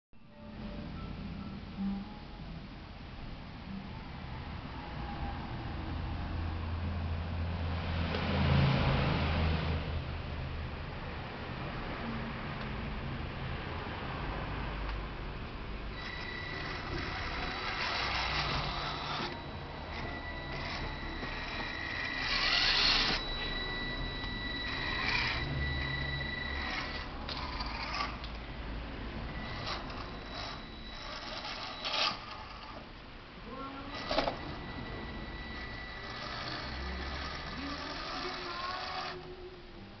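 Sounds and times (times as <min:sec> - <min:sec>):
high-pitched whine: 0:15.8 - 0:40.0
electric motor and gearbox whirring: 0:15.9 - 0:28.4, 0:29.3 - 0:32.9, 0:33.9 - 0:39.4.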